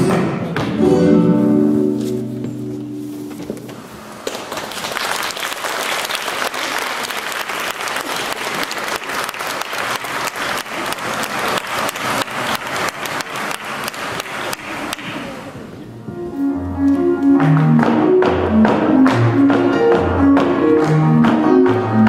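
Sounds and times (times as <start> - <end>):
audience applauding: 4.2 - 15.5.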